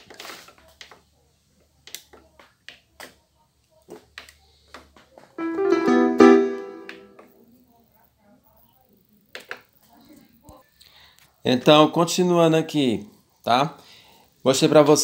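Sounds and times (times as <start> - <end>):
piano-like notes on keyboard: 5.4 - 7.2.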